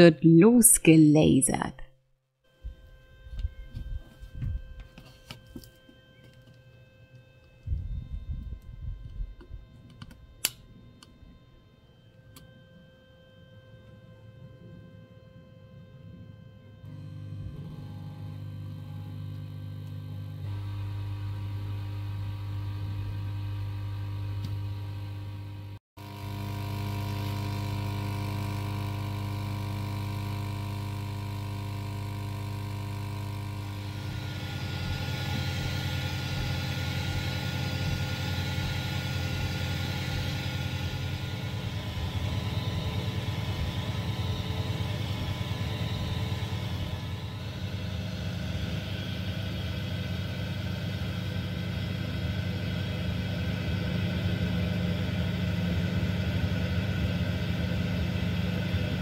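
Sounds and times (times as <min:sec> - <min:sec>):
air pump humming: 0:26.0 - 0:59.0.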